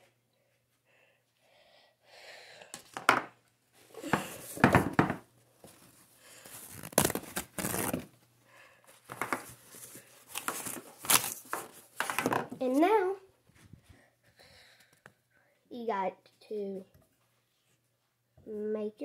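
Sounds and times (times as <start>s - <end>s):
paper towel tearing and crinkling: 6.4s - 8.1s, 9.7s - 11.9s.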